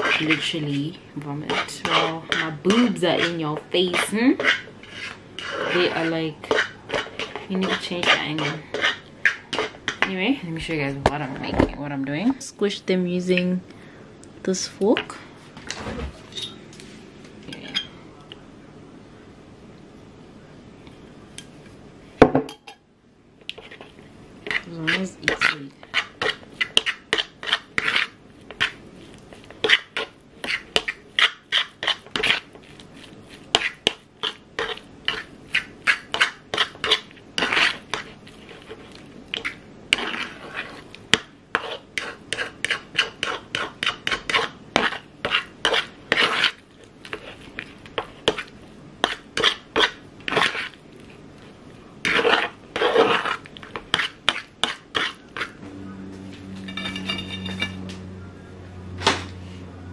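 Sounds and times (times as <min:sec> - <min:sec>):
fork scraping a plastic bowl: 0:00.0 - 0:00.8, 0:01.4 - 0:10.1, 0:23.5 - 0:50.8, 0:52.0 - 0:55.6.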